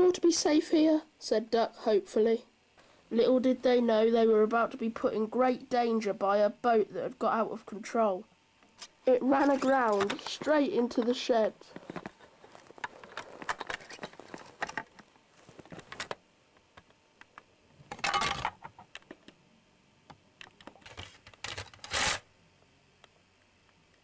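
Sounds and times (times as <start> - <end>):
plastic toy pieces clattering: 9.4 - 10.5, 17.9 - 18.6.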